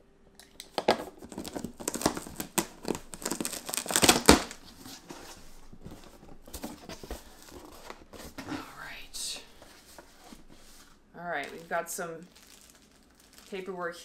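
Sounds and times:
packing tape ripping: 0.4 - 4.7, 12.3 - 13.7
cardboard rustling: 0.7 - 13.7.

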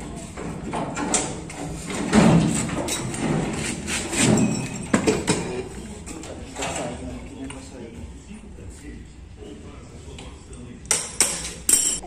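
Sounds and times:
metal clunks and knocks: 0.4 - 5.6.

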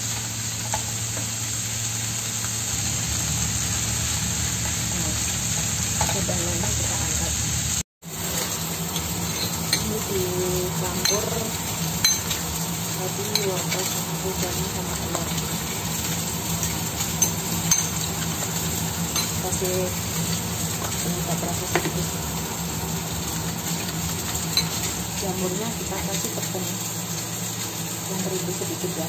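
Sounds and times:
frying sizzle: 0.0 - 29.0
spoon clinking against ceramic bowl: 9.2 - 9.9, 12.0 - 12.4, 17.2 - 18.1, 19.1 - 19.4.

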